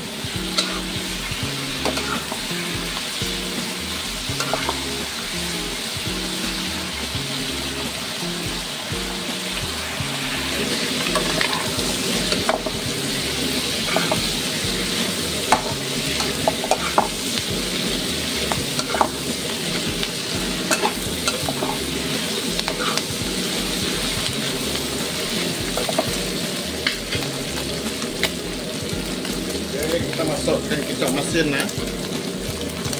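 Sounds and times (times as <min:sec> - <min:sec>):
food sizzling in oil: 0:00.0 - 0:32.9
metal spoon scraping pan: 0:00.5 - 0:01.0, 0:01.8 - 0:02.4, 0:04.3 - 0:04.8, 0:13.8 - 0:14.3, 0:15.5 - 0:17.2, 0:20.6 - 0:23.1.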